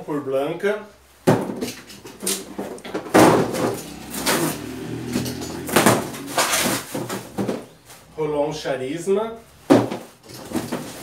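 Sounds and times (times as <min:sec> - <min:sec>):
cardboard boxes knocking and scraping: 0:09.7 - 0:11.0.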